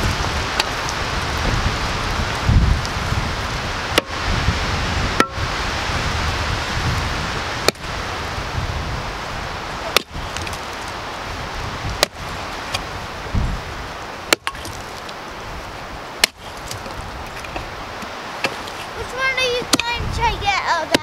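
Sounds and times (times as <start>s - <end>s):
steady wind: 0.0s - 21.0s
blade chopping into roots: 16.2s - 16.8s.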